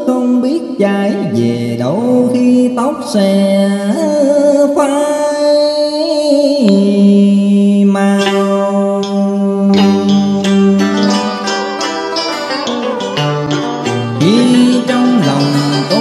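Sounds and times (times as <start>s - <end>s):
song with sliding bending notes: 8.0s - 16.0s.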